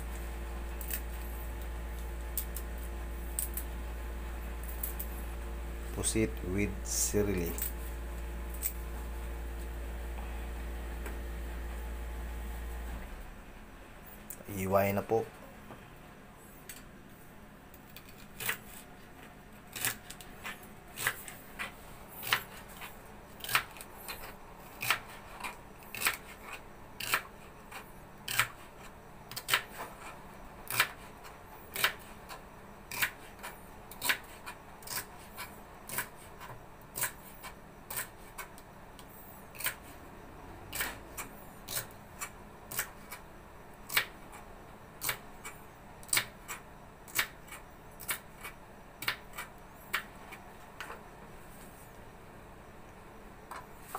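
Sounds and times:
knife chopping celery on plastic board: 0:19.7 - 0:31.1, 0:31.7 - 0:38.6, 0:39.5 - 0:39.9, 0:40.7 - 0:43.2, 0:43.9 - 0:44.4, 0:45.0 - 0:51.0.

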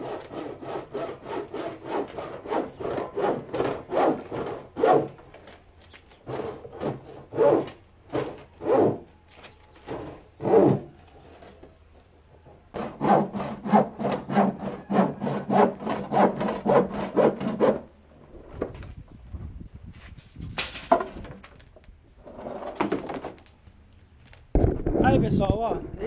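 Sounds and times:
handsaw cutting plastic: 0:00.0 - 0:05.2, 0:06.1 - 0:09.0, 0:09.8 - 0:10.9, 0:12.8 - 0:17.8.

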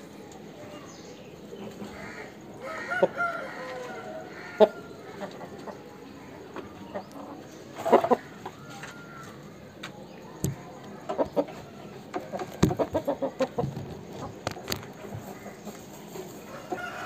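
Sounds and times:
chickens clucking: 0:00.0 - 0:17.0.

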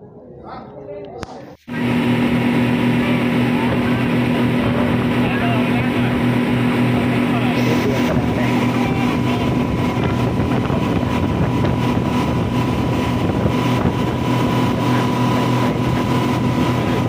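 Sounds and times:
wind: 0:00.0 - 0:17.0
boat engine drone: 0:01.4 - 0:17.0.

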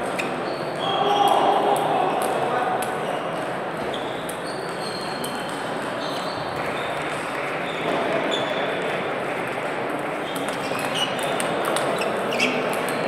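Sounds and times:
sports hall background wash: 0:00.0 - 0:13.0.

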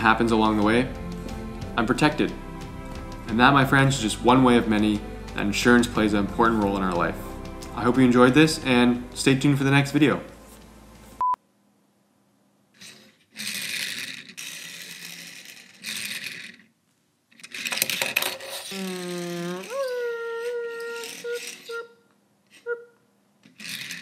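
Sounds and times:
toy car rolling on wooden table: 0:12.8 - 0:21.9, 0:23.4 - 0:24.0.

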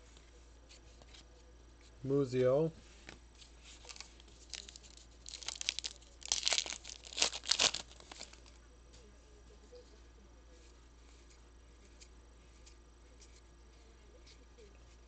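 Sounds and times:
wrapper ripping and crinkling: 0:03.7 - 0:08.5.

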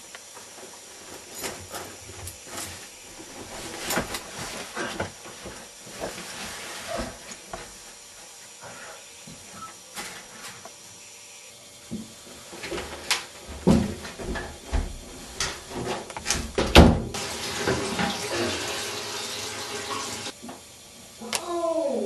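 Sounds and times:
running water rushing: 0:17.2 - 0:20.3.

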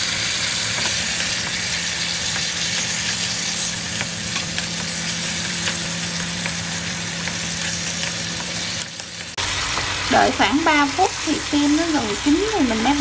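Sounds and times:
meat sizzling in a pan: 0:00.0 - 0:13.0.

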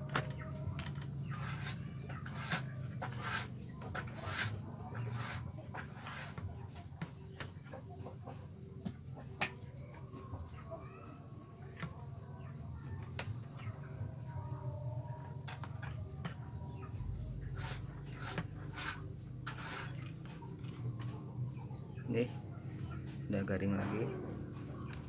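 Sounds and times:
crickets chirping: 0:16.1 - 0:17.8, 0:18.7 - 0:25.0.

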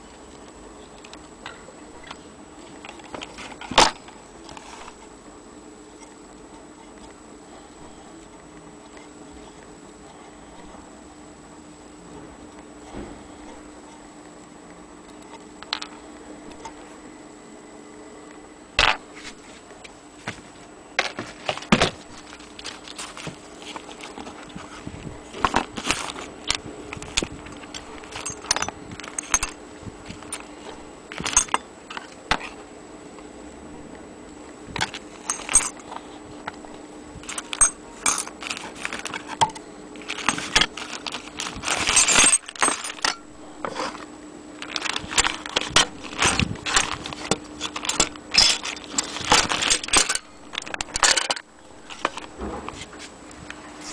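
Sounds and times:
plastic bag rustling: 0:21.0 - 0:31.6, 0:34.8 - 0:44.0, 0:44.6 - 0:53.1
metal clock parts clinking: 0:25.5 - 0:29.6, 0:30.2 - 0:32.4, 0:34.8 - 0:35.8, 0:37.2 - 0:43.3, 0:44.6 - 0:52.3.

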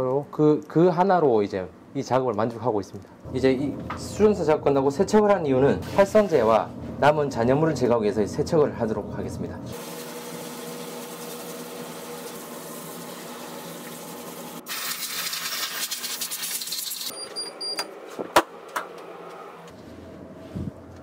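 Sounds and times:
water spray hissing: 0:09.8 - 0:17.1.

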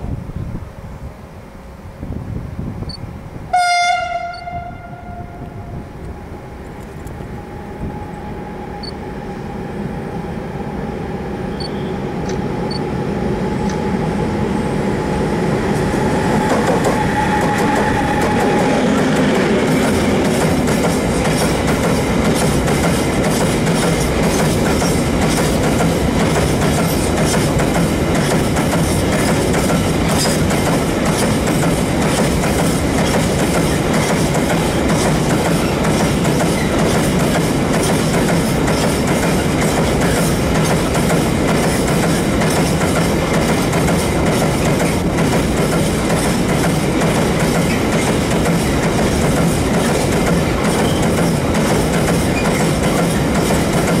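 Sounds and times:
train horn blast: 0:03.5 - 0:06.0, 0:16.0 - 0:19.0
wheels clicking over rail joints: 0:19.7 - 0:54.0.

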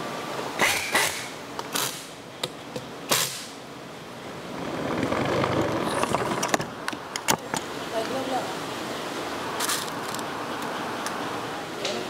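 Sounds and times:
steady rushing noise: 0:03.4 - 0:11.8.

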